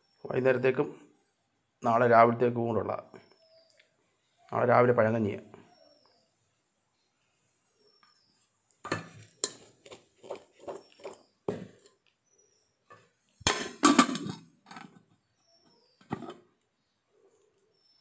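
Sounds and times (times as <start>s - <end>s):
metal pot and lid clattering: 8.9s - 9.7s, 13.4s - 14.9s.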